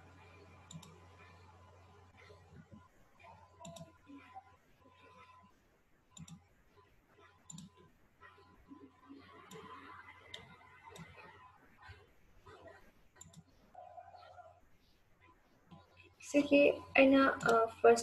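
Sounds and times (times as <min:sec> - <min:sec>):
computer mouse clicks: 0:00.7 - 0:01.0, 0:03.6 - 0:04.0, 0:06.2 - 0:06.4, 0:07.4 - 0:07.8, 0:09.4 - 0:12.6, 0:13.2 - 0:13.5, 0:17.4 - 0:17.6.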